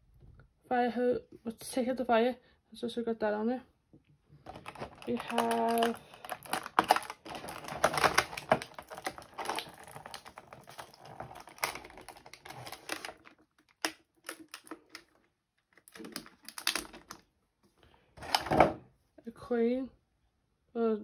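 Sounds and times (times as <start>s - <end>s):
plastic packaging crackling: 4.4s - 17.3s.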